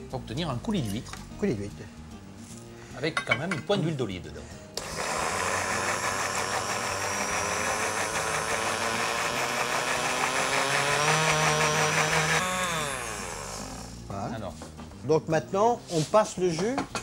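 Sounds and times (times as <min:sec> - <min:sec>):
blender spinning down whine: 0:04.8 - 0:14.0
blender running: 0:04.8 - 0:14.1.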